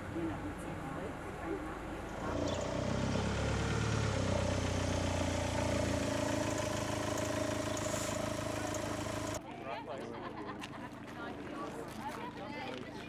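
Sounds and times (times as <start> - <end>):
minibus engine idling: 0.0 - 9.4.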